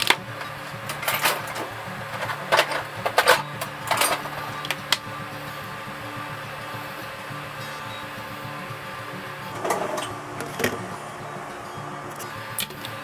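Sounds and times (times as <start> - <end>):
tools knocking and clinking: 0.9 - 4.8.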